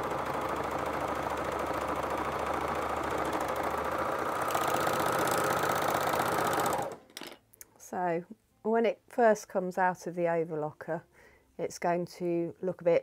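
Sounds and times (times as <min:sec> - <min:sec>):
overlocker sewing machine chattering: 0:00.0 - 0:07.0.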